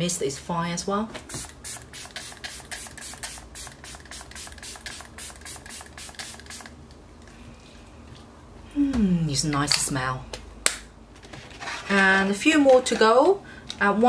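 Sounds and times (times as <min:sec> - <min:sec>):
spray bottle hissing mist: 0:01.3 - 0:06.7.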